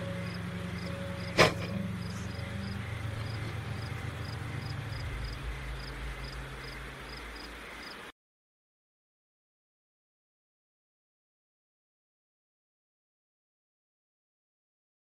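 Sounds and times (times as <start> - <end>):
crickets chirping: 0.0 - 8.1
low steady hum: 0.0 - 8.1.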